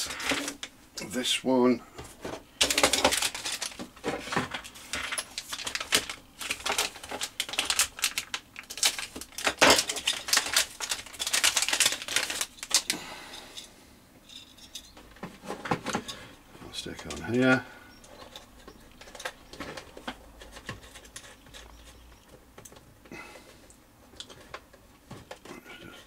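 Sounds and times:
plastic parts clicking and tapping: 2.2s - 12.9s, 18.0s - 22.9s, 24.1s - 25.5s
packaging crinkling: 2.6s - 13.0s.

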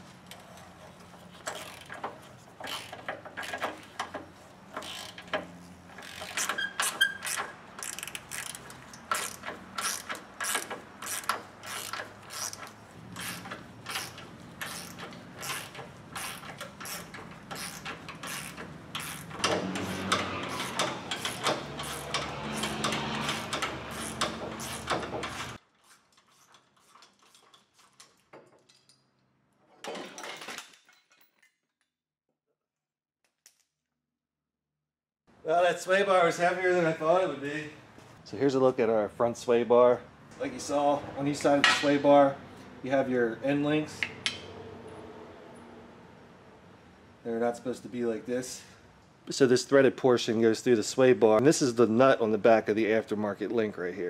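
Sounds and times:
socket ratchet clicking: 6.0s - 25.5s.

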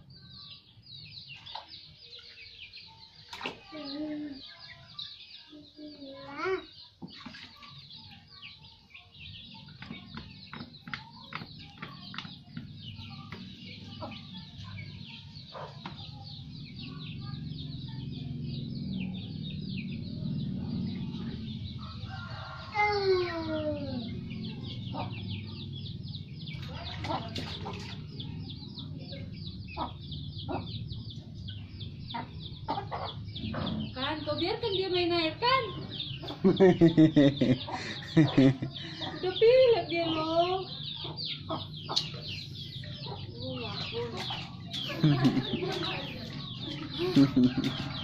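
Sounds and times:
chickens clucking: 1.4s - 48.0s.

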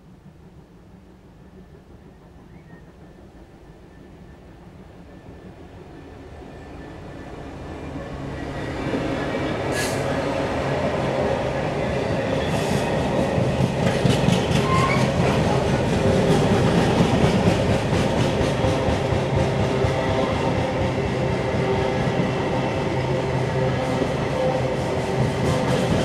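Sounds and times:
diesel locomotive engine hum: 0.0s - 26.0s
train wheels clicking over rail joints: 8.6s - 22.4s, 23.8s - 26.0s.

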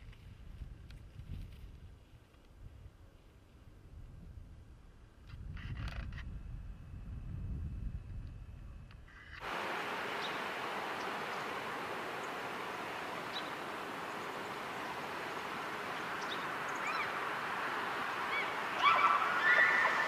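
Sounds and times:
outdoor background hiss: 6.5s - 20.0s
faint short high calls: 11.4s - 20.0s.

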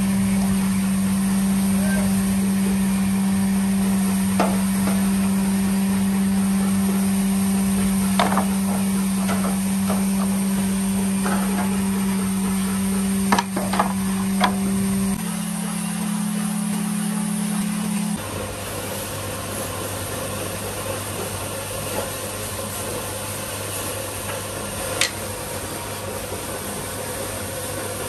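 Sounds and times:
steady low hum: 0.0s - 21.5s.

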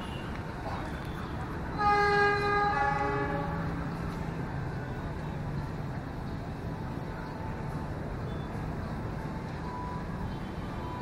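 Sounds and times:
locomotive air horn: 1.8s - 3.8s.

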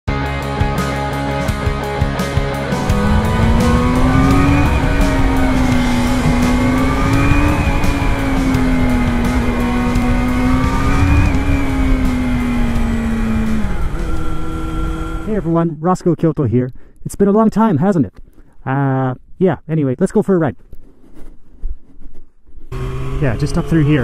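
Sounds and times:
motorcycle engine running: 1.1s - 15.5s, 22.7s - 24.0s
low wind rumble: 2.3s - 15.6s.

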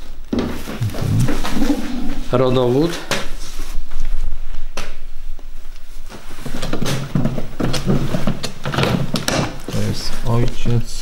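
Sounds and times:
low rumble: 0.8s - 2.8s.

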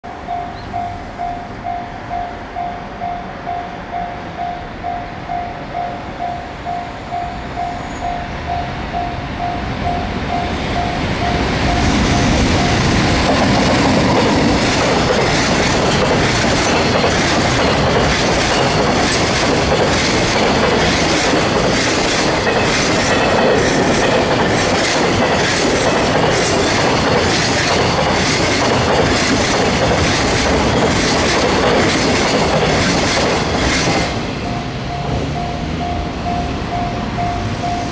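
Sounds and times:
level-crossing bell dinging: 0.0s - 13.2s, 34.4s - 37.9s
train wheels clicking over rail joints: 9.9s - 36.0s.

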